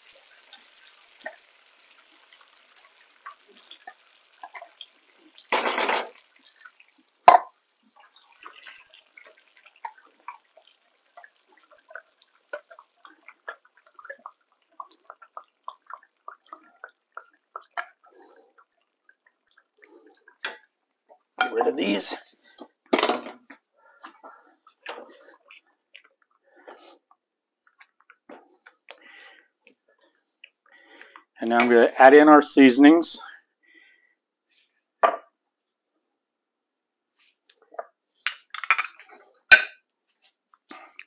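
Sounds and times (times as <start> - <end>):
soup dripping and plopping: 0.0 - 21.8.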